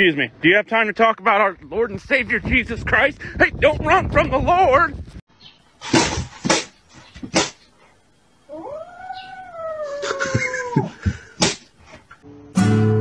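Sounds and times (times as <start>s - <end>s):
kitten meowing: 8.5s - 10.4s.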